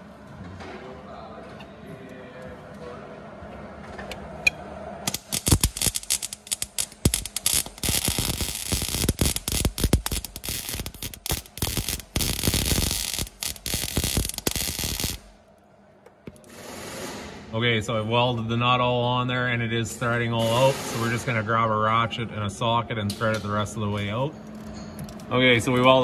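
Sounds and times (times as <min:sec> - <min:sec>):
welder arc crackling: 0:05.1 - 0:15.4.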